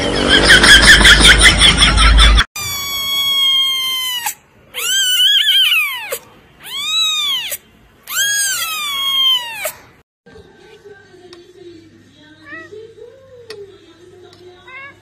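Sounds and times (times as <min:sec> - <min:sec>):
kitten meowing loudly: 0:02.6 - 0:09.8.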